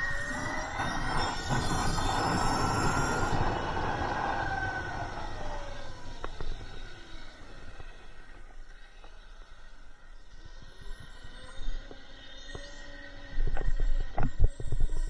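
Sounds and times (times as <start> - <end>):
wind and tyre rush: 0.0 - 8.6
electric motorcycle motor whining: 0.0 - 15.0.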